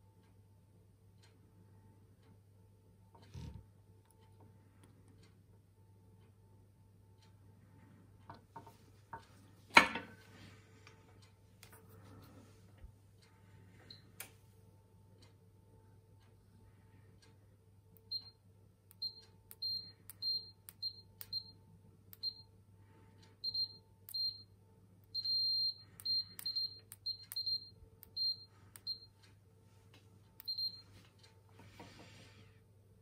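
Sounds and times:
multimeter continuity beeps: 17.9s - 22.6s, 23.2s - 29.4s, 30.4s - 31.4s.

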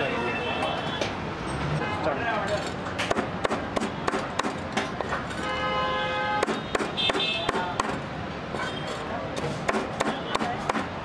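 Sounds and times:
busy background noise: 0.0s - 11.0s
cleaver chopping on plastic board: 3.0s - 5.2s, 6.4s - 8.0s, 9.6s - 11.0s.

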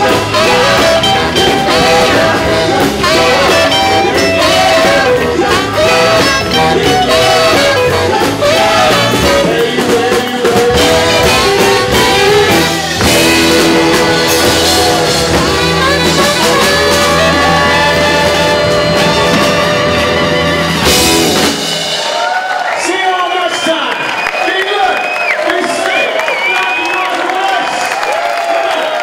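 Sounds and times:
electric guitars: 0.0s - 22.4s
drum kit: 0.0s - 23.2s
saxophone section: 0.0s - 27.6s
man and woman singing: 0.3s - 15.1s.

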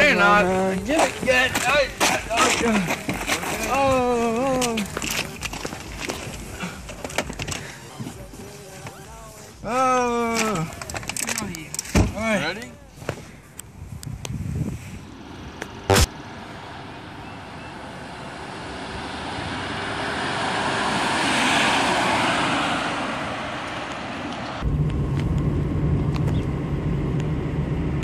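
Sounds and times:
sharp thump: 11.9s - 12.2s, 15.9s - 16.1s
car passing by: 14.7s - 24.8s
car engine drone inside cabin: 24.5s - 28.0s.

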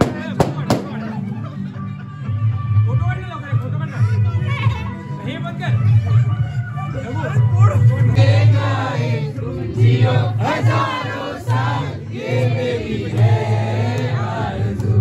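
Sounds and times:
group of people singing: 8.0s - 15.0s.

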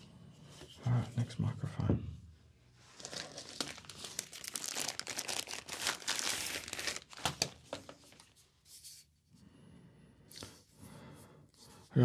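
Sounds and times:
plastic packaging crinkling: 2.9s - 8.4s.

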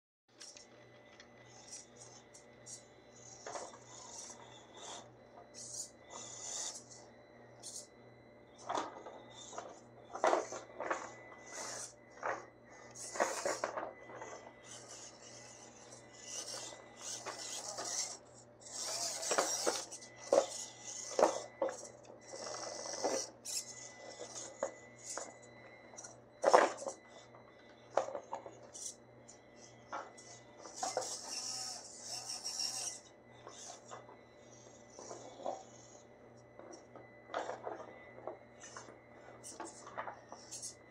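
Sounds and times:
faint high whine: 0.3s - 40.9s
toy car scraping over plastic rocks: 3.3s - 6.9s, 8.6s - 25.3s, 30.0s - 34.0s, 36.6s - 40.8s.

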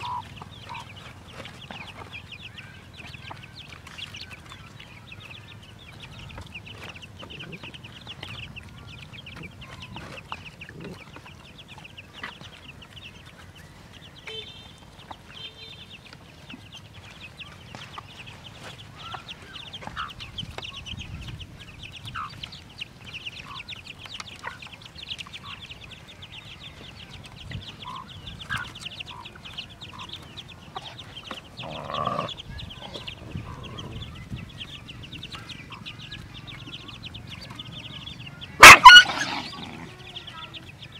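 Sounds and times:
hen clucking: 0.0s - 2.3s, 5.9s - 12.5s, 27.8s - 37.9s, 38.6s - 40.7s
chicks peeping: 0.0s - 40.9s
loud hen call: 38.6s - 40.0s.

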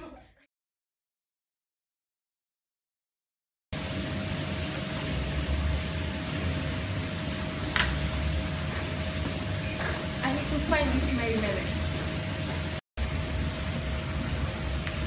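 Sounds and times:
low rumble and hiss: 3.8s - 15.0s.

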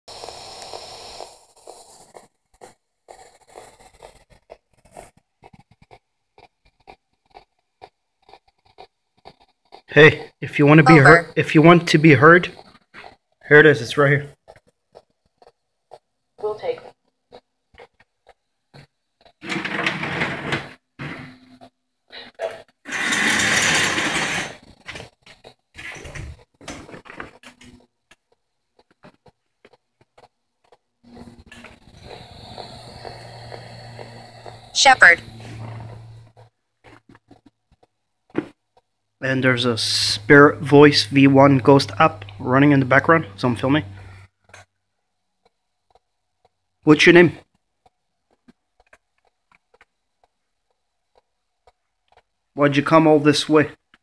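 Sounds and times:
radio static sweeping: 34.7s - 35.8s.

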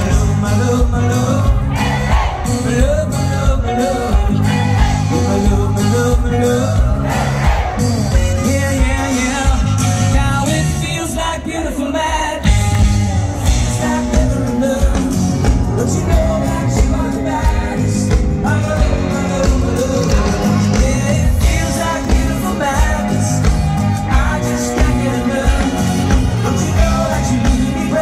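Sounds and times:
live pop-rock band: 0.0s - 28.0s
person singing: 0.0s - 28.0s.

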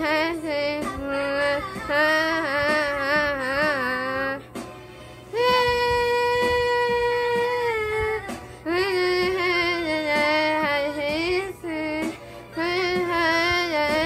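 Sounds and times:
woman singing solo: 0.0s - 4.4s, 5.3s - 14.0s.

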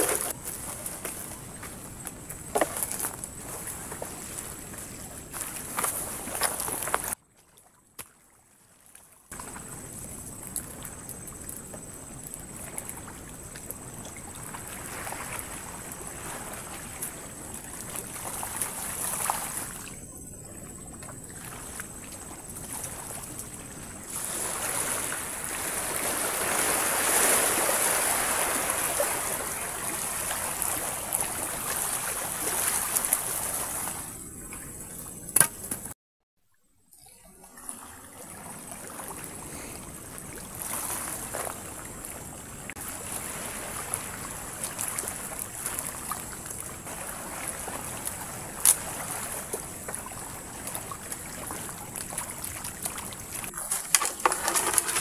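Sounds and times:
waves washing onto beach: 0.0s - 7.2s, 21.4s - 34.2s, 38.0s - 55.0s.

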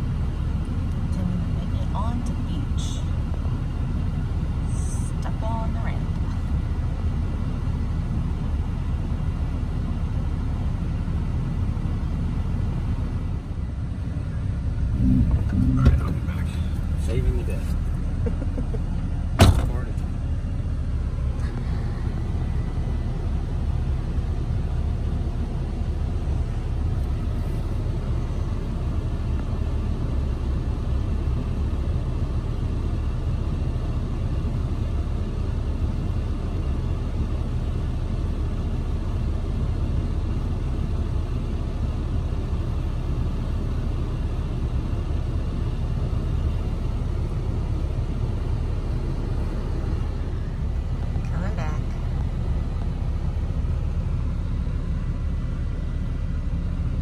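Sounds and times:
pickup truck idling: 0.0s - 57.0s.

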